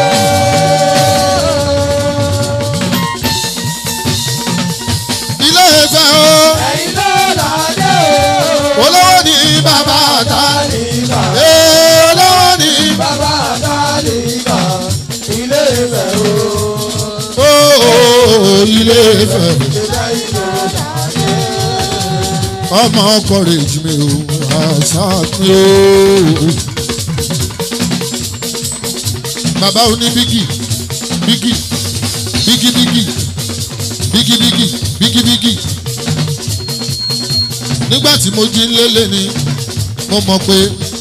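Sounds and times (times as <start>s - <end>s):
person singing: 0.0s - 3.0s, 5.5s - 26.6s
percussion: 0.0s - 41.0s.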